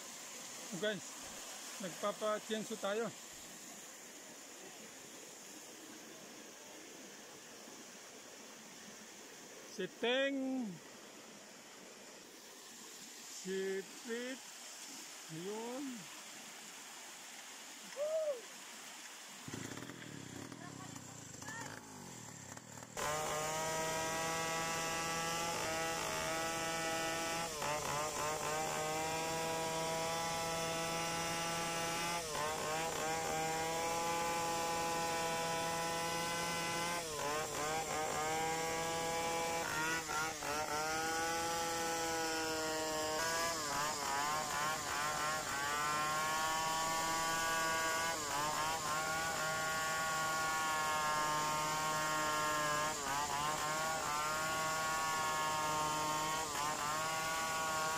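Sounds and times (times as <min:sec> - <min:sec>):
chainsaw cutting log: 0:19.4 - 0:57.9.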